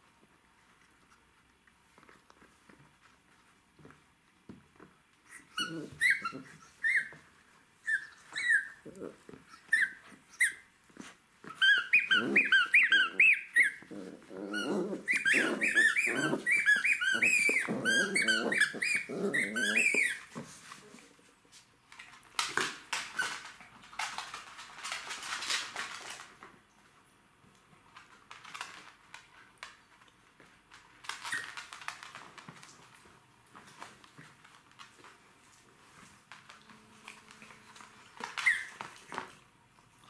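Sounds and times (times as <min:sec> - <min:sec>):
squeaky toy squeaking: 0:05.3 - 0:07.2, 0:07.8 - 0:08.8, 0:11.5 - 0:13.8, 0:14.5 - 0:20.3, 0:38.2 - 0:38.8
puppy growling: 0:05.5 - 0:06.6, 0:08.4 - 0:09.6, 0:10.9 - 0:21.2.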